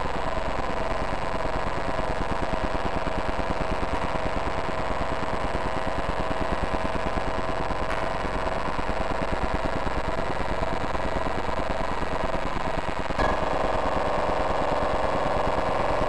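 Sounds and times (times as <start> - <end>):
electronic buzz of rapid pulses: 0.0 - 16.0
held electronic tone: 13.2 - 16.0.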